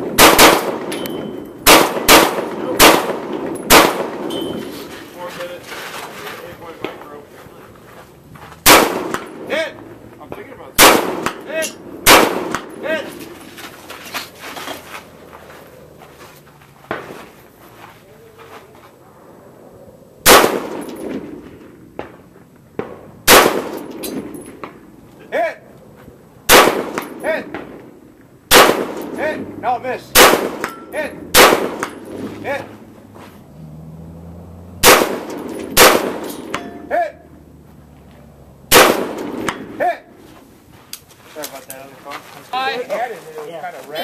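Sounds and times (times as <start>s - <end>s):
rifle shots: 0.0s - 4.8s, 8.6s - 9.6s, 10.8s - 13.1s, 20.2s - 22.1s, 22.8s - 24.8s, 26.5s - 27.9s, 28.5s - 29.4s, 30.1s - 32.4s, 34.8s - 36.8s, 38.7s - 39.8s
steel target ringing: 0.8s - 1.6s, 3.5s - 4.8s, 35.2s - 36.9s
bullet ding on steel target: 0.9s - 1.5s, 4.3s - 4.6s, 36.5s - 36.9s.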